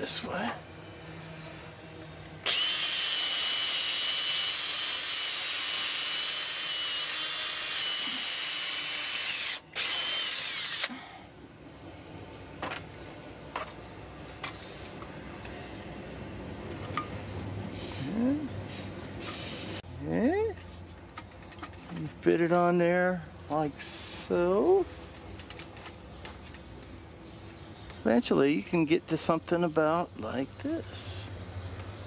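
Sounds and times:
cordless drill running: 2.4 - 11.0.

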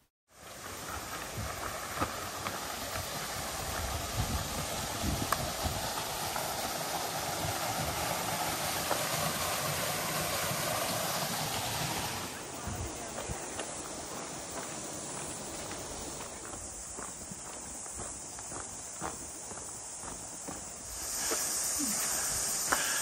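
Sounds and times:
river water rushing over rocks: 0.6 - 13.5.

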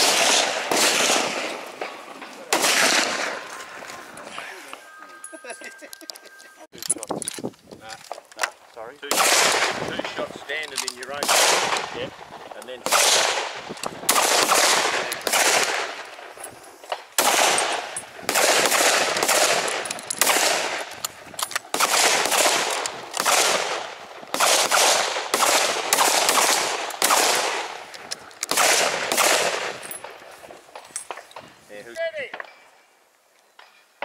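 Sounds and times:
rifle shots echoing: 0.0 - 3.5, 9.0 - 16.3, 17.2 - 21.0, 21.6 - 30.2.

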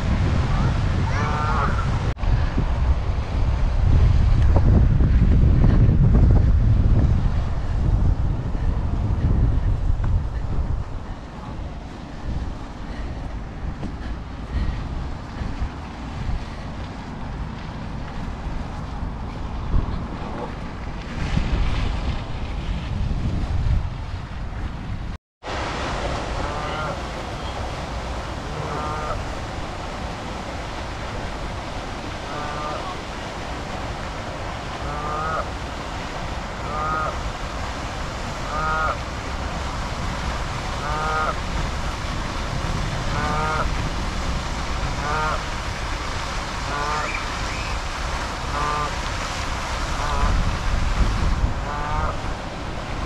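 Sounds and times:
steady background noise: 0.0 - 22.6, 24.3 - 53.0
water rushing: 0.0 - 23.4, 25.4 - 53.0
wind buffeting microphone: 0.0 - 53.0
geese calling: 0.6 - 2.1, 26.4 - 27.6, 28.5 - 29.3, 32.2 - 33.0, 34.8 - 35.5, 36.6 - 37.3, 38.4 - 39.0, 40.8 - 41.4, 43.1 - 43.7, 45.0 - 45.5, 46.6 - 47.8, 51.6 - 52.2
goose honking: 0.6 - 2.1, 26.4 - 27.0, 28.5 - 29.3, 32.3 - 33.0, 34.8 - 35.5, 36.6 - 37.2, 38.4 - 39.0, 40.8 - 41.4, 43.1 - 43.7, 45.0 - 45.4, 46.6 - 47.3, 48.5 - 49.0, 49.9 - 50.4, 51.6 - 52.2.

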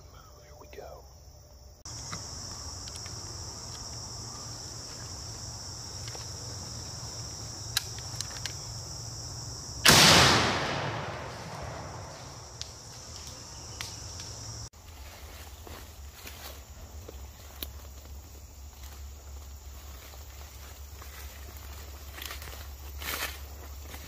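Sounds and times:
insects chirping: 0.0 - 24.0
shotgun blast with echo: 9.8 - 12.1.

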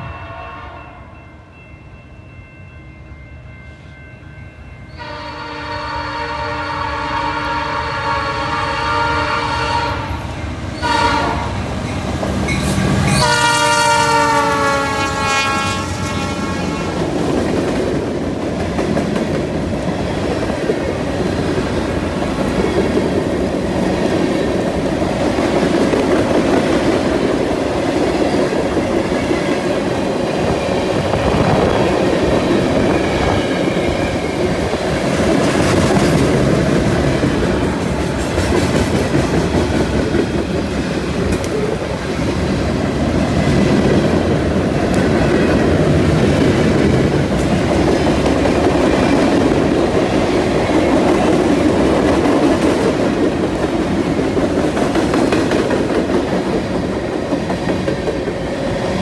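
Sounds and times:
locomotive horn blasts: 0.0 - 1.1, 5.0 - 10.2, 10.8 - 11.6, 13.1 - 17.1
freight train wheels clattering: 16.9 - 59.0.

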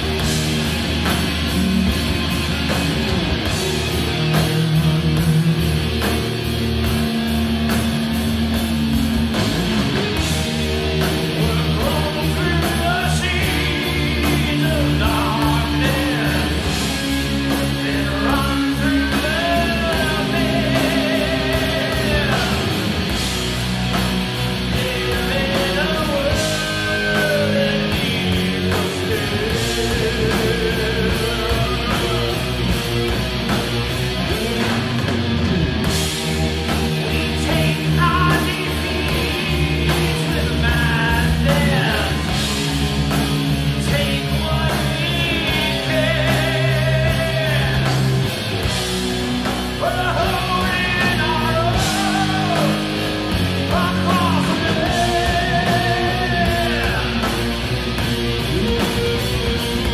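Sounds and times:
bass guitar: 0.0 - 59.9
distorted electric guitars: 0.0 - 59.9
drums: 0.0 - 59.9
lead vocal singing: 10.2 - 33.3, 35.9 - 57.8.

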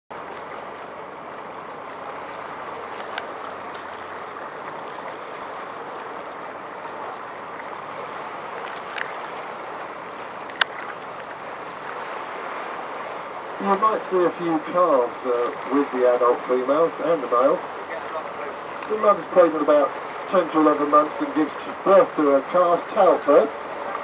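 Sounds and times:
seawater lapping along hull: 0.1 - 24.0.

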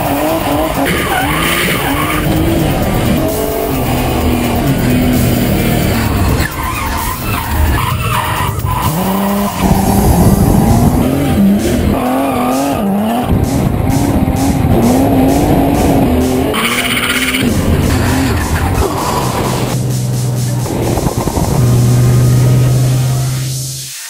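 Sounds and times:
tyres squealing: 0.0 - 13.3, 14.4 - 19.8
car engine revving: 0.0 - 24.0
music with steady beat: 0.0 - 24.0.

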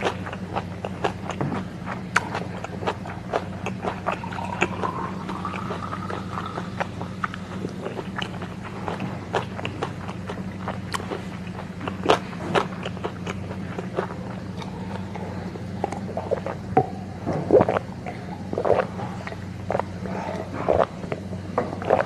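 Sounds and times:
chewing: 0.0 - 22.0
steady low hum: 0.0 - 22.0
gulping a drink: 2.1 - 22.0.

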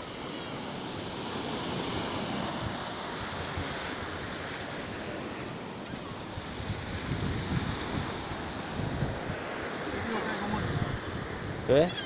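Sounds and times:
sea surf washing onto beach: 0.0 - 12.0
wind buffeting microphone: 1.4 - 12.0.

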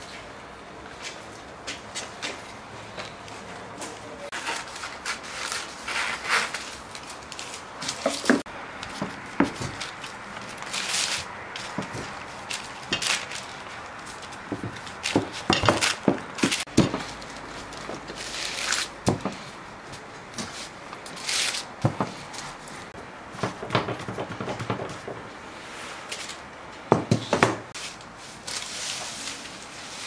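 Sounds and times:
rustling or scraping: 0.0 - 26.5, 27.1 - 30.0
utensils and dishes knocking: 14.5 - 17.2.

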